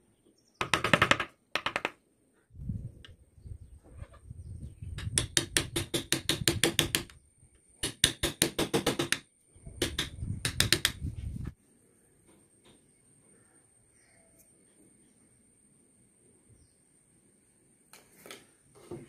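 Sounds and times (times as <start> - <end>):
mallet tapping chisel into wood: 9.8 - 11.0.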